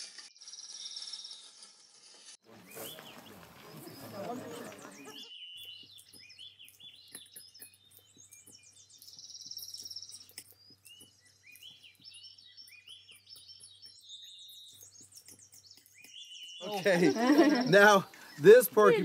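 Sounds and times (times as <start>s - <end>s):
faint songbirds chirping: 2.5s - 19.0s
rapid high bird trill: 4.9s - 19.0s.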